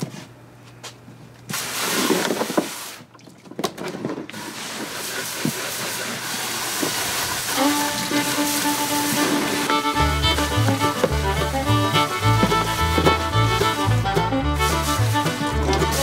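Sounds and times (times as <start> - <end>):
spray hissing: 4.4 - 16.0.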